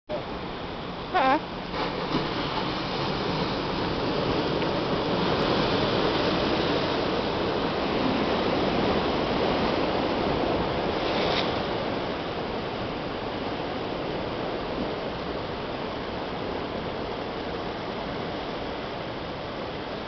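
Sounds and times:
ocean waves crashing on rocks: 0:00.2 - 0:20.0.

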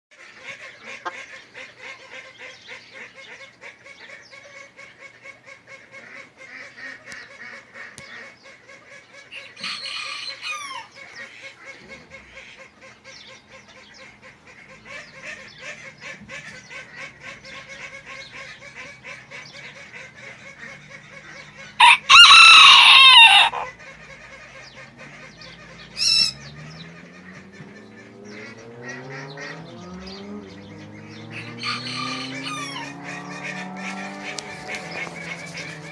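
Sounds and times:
rooster crowing: 0:09.6 - 0:10.9, 0:21.8 - 0:23.7, 0:31.3 - 0:33.2.

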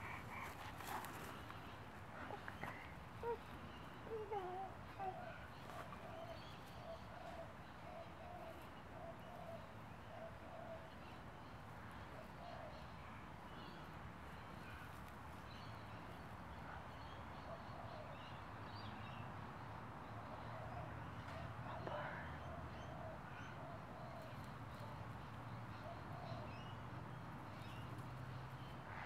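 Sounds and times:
birds calling: 0:00.0 - 0:12.9.

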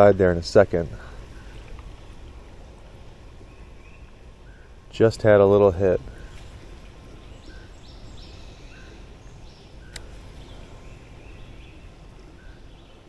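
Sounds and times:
faint birds calling: 0:00.0 - 0:13.0
outdoor background noise: 0:00.0 - 0:13.0
sharp click: 0:09.9 - 0:10.1.

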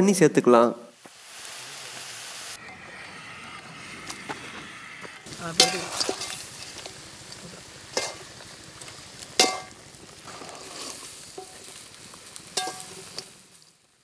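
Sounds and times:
pork sizzling in metal pan: 0:00.4 - 0:14.0
metal ladle clanking against pan: 0:09.4 - 0:09.7, 0:12.6 - 0:12.9.

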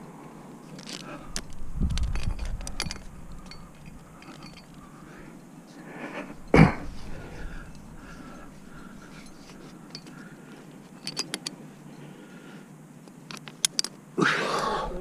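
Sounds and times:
karabiners clinking: 0:00.6 - 0:12.1, 0:13.1 - 0:14.0.

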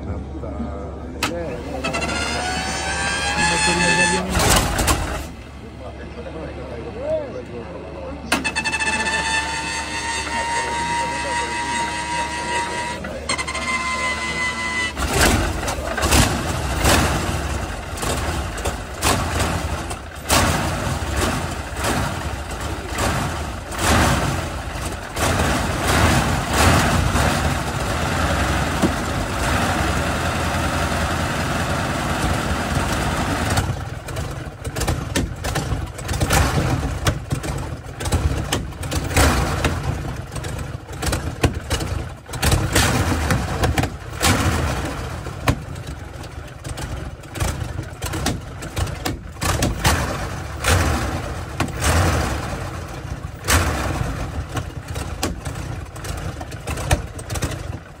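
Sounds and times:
aircraft engine starting: 0:01.0 - 0:06.8
starter whine: 0:01.0 - 0:58.0
exhaust cracks: 0:14.9 - 0:58.0.

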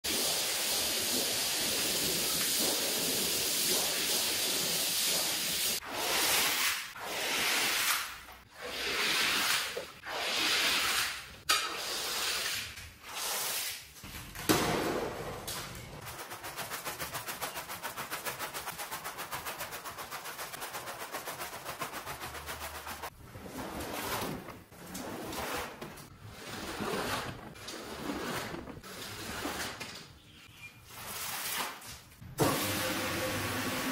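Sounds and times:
noisy scrubbing strokes: 0:16.1 - 0:23.2.

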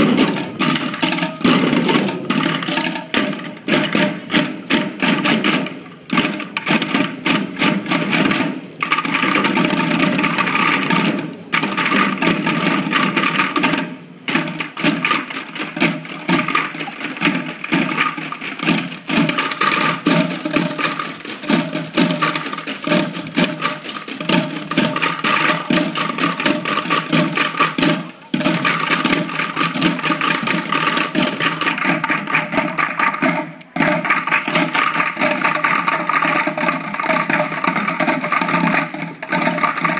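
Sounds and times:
children drumming on plastic buckets: 0:00.0 - 0:39.9.

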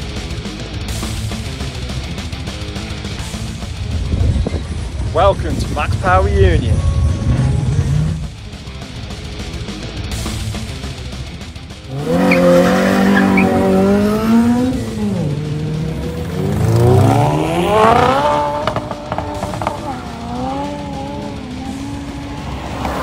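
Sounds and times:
car engines revving hard: 0:06.8 - 0:23.0
exhaust cracks: 0:09.4 - 0:23.0.

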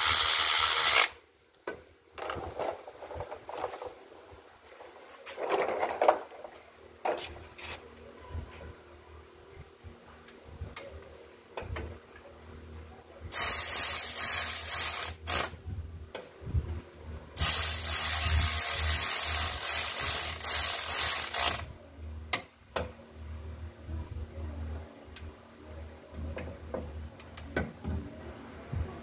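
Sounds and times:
cordless drill driving bolts: 0:00.0 - 0:01.2.

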